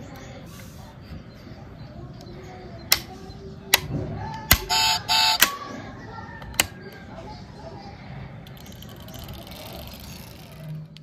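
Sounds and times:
sharp plastic clicks: 2.9 - 5.6, 6.4 - 7.0
electronic car horn beeps: 4.7 - 5.4.

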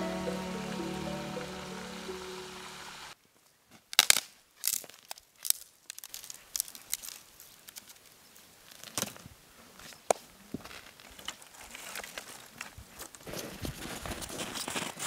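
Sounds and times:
sticks clicking and rustling: 3.9 - 9.2
twigs snapping: 3.9 - 9.2.

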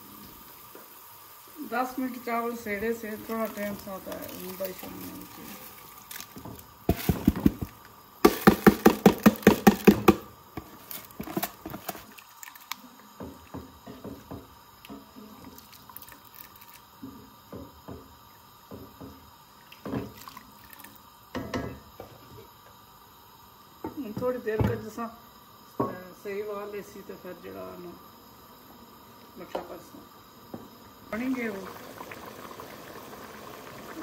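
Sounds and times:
loud knocks against pot: 6.9 - 10.3.

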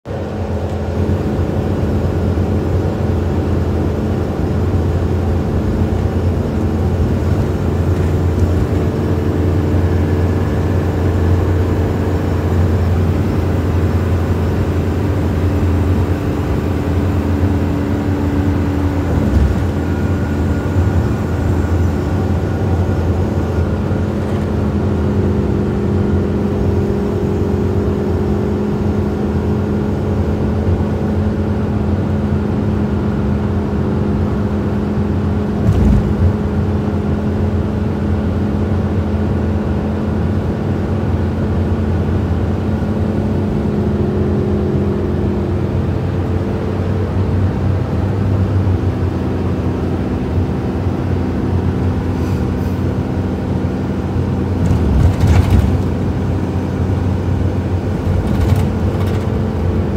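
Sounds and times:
minibus engine drone: 0.0 - 59.9
road noise: 0.1 - 59.9
vehicle bump: 18.9 - 23.5, 35.6 - 36.6, 54.5 - 57.0, 57.7 - 59.9.

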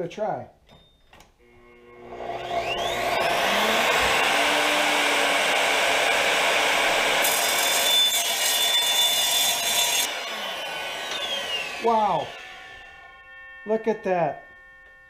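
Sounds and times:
miter saw motor whine: 1.4 - 15.0
saw blade screeching through steel: 7.2 - 15.0.

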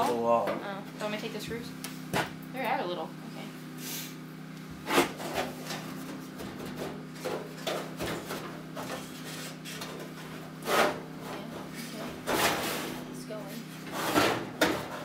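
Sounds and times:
sheet metal scraping and rubbing: 8.8 - 13.0, 13.8 - 15.0.

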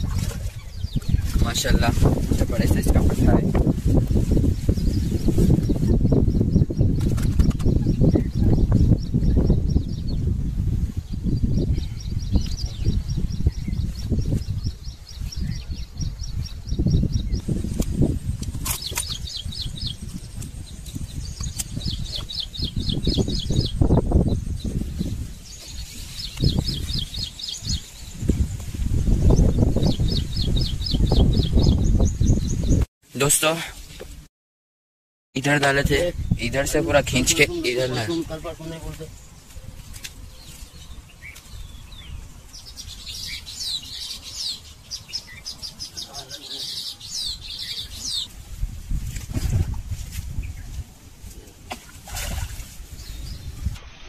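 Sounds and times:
bird chirping: 4.5 - 10.3, 11.0 - 32.8, 36.1 - 48.3.

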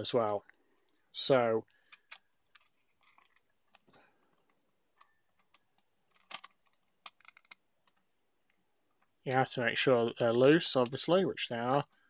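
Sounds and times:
plastic clicks and rattles: 1.8 - 8.1.

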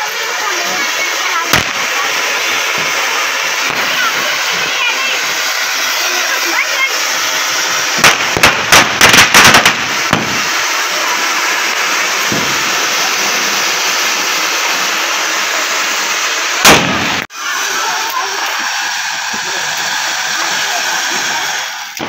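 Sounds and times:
firecracker bangs: 0.0 - 22.0
ground fountain fireworks hissing: 0.0 - 22.0.

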